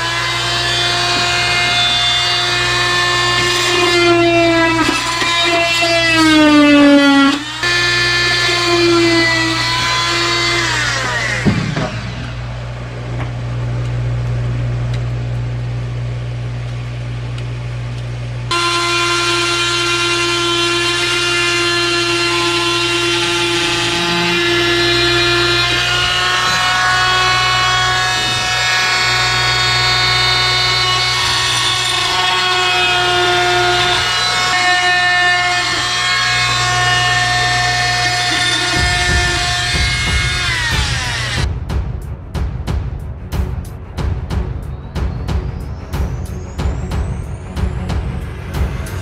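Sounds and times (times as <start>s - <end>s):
power tool whining: 0.0s - 14.1s, 18.4s - 41.5s
low hum: 0.0s - 49.0s.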